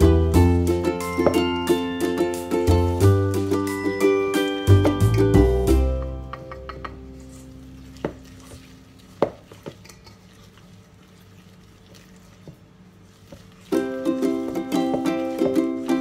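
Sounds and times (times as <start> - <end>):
whisk clinking against metal bowl: 6.3 - 10.6
whisk stirring batter in a bowl: 6.7 - 16.0.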